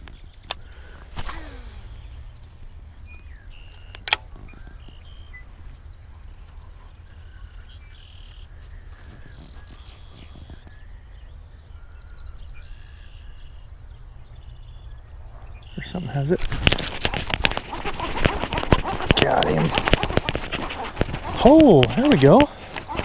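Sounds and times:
birds chirping: 0:00.0 - 0:23.0
sharp click: 0:03.8 - 0:04.3.

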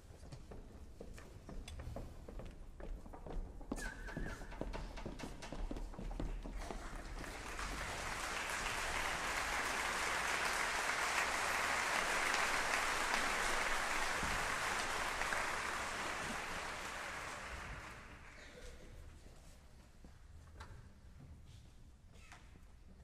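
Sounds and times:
audience applauding: 0:06.6 - 0:18.6.

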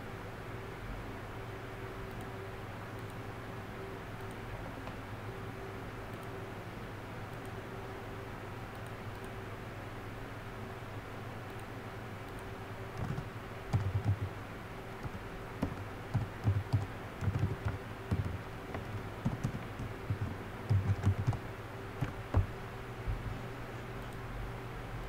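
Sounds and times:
steady low hum: 0:00.0 - 0:25.0
typing on computer keyboard: 0:13.0 - 0:14.4, 0:15.0 - 0:21.4, 0:22.0 - 0:22.5.

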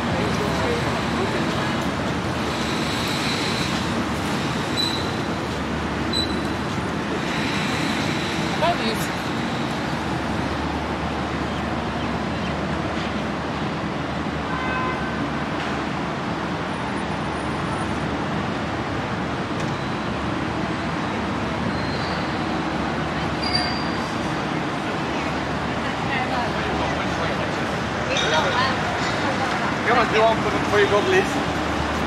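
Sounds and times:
cars passing on busy street: 0:00.0 - 0:32.0.

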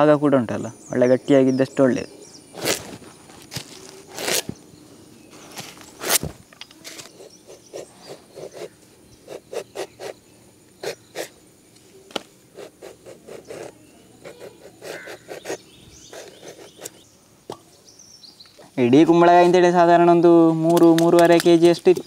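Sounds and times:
blade scraping gourd rind: 0:02.5 - 0:04.5, 0:12.6 - 0:17.0.

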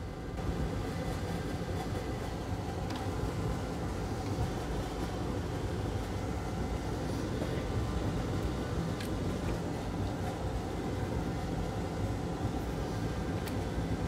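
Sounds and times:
fan whirring hum: 0:00.0 - 0:14.0.

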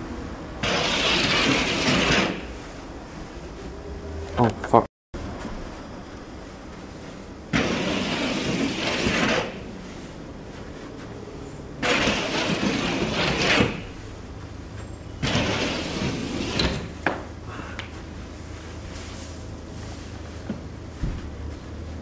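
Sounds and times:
stick scraping a wall: 0:00.6 - 0:02.6, 0:07.5 - 0:10.0, 0:11.8 - 0:14.0, 0:15.2 - 0:17.0.

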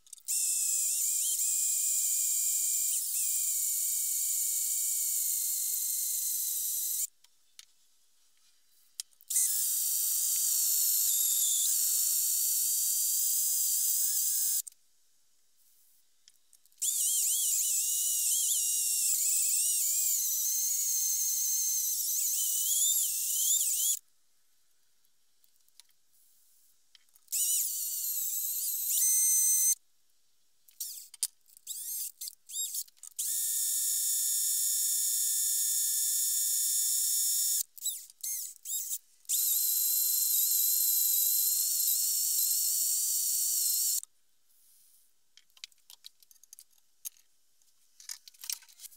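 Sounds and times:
drill bit squealing into steel: 0:09.3 - 0:14.6, 0:16.8 - 0:24.0, 0:27.3 - 0:29.8, 0:31.7 - 0:44.0.

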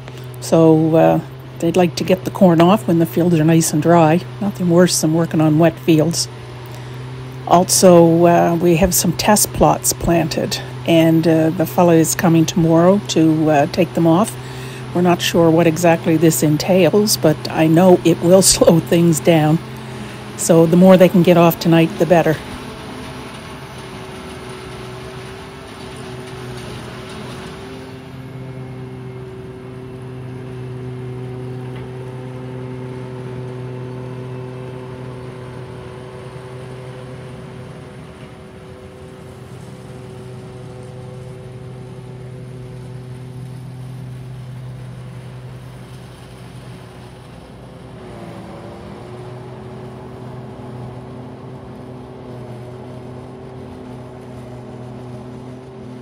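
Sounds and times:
forage harvester droning: 0:00.0 - 0:56.0.

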